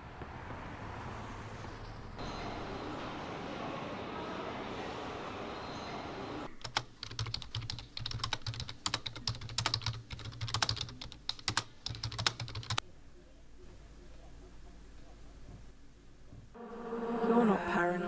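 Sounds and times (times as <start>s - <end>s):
steady background noise: 0.0s - 18.0s
fast typing on keyboard: 6.6s - 12.8s.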